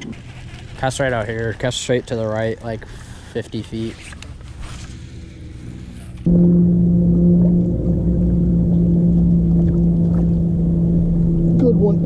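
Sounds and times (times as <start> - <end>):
water noise: 4.1 - 12.0
electric trolling motor humming: 4.9 - 12.0.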